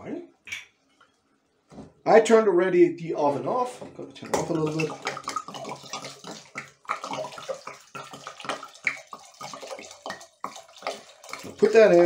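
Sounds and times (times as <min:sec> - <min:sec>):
wine gurgling from bottle into pot: 0:04.1 - 0:12.0.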